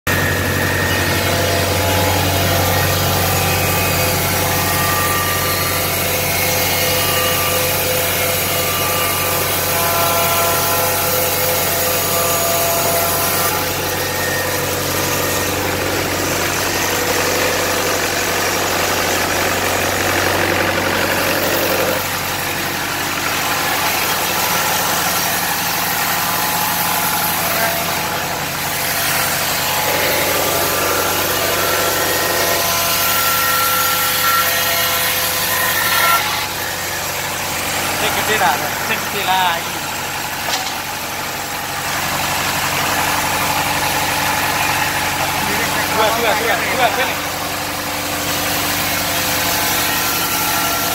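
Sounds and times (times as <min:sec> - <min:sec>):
band saw machine hum: 0:00.1 - 0:50.9
machine whining tones: 0:00.1 - 0:50.9.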